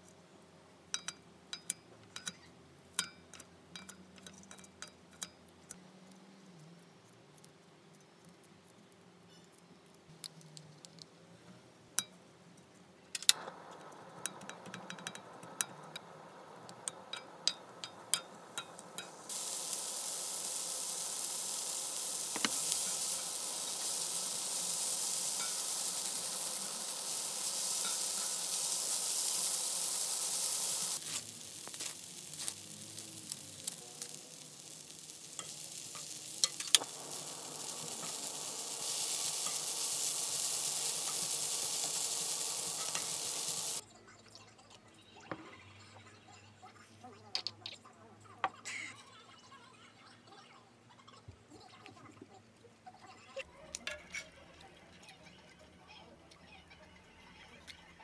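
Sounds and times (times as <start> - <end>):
food sizzling on a griddle pan: 1.0 - 6.4, 13.3 - 43.8
utensils clicking and scraping pan: 13.2 - 43.8.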